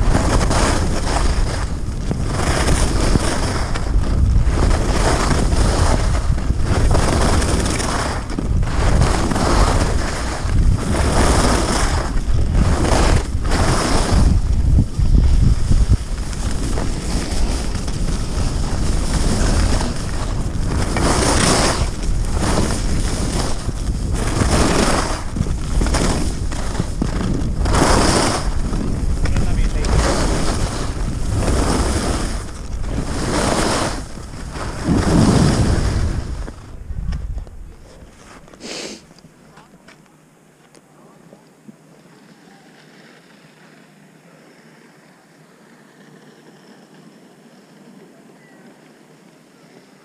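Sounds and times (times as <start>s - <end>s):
wind rushing over microphone: 0.0s - 38.7s
skis scraping over snow: 0.0s - 40.0s, 41.7s - 50.0s.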